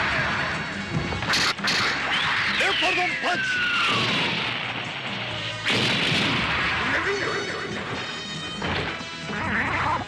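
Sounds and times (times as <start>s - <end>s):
background music: 0.0s - 10.0s
crash hits: 3.9s - 7.0s.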